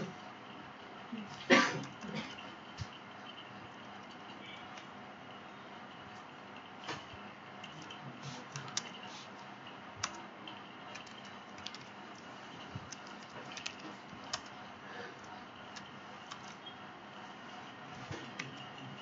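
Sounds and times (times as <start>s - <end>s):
keyboard typing: 3.0s - 4.9s, 7.6s - 9.1s, 10.0s - 16.8s, 18.0s - 19.0s.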